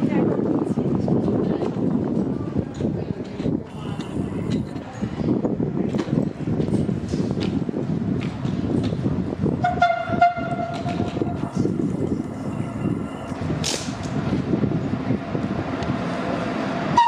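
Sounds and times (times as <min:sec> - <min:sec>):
train rumbling: 0:00.0 - 0:17.0
train horn: 0:09.6 - 0:11.0.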